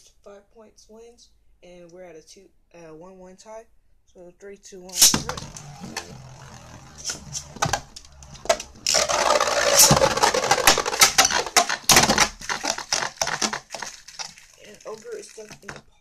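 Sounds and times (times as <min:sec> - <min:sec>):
spinning tops whirring and scraping: 0:04.9 - 0:15.8
spinning tops clacking: 0:05.0 - 0:13.8.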